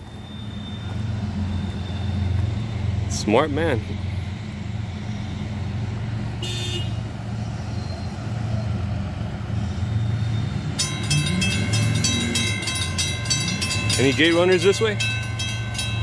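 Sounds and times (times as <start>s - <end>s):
railroad crossing bells ringing: 9.9s - 16.0s
steady low rumble: 10.8s - 16.0s.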